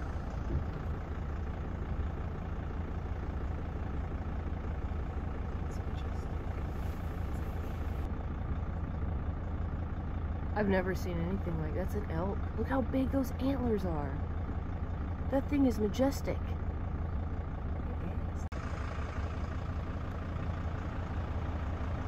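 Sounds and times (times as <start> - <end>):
van engine rumbling: 0.0 - 22.0.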